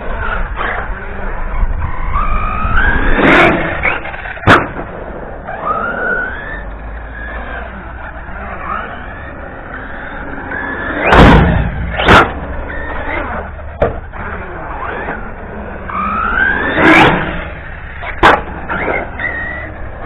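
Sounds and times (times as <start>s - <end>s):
wind rumble on microphone: 0.0s - 4.1s
rc truck motor whining: 0.0s - 20.0s
truck knocking on ramps: 13.8s - 14.1s.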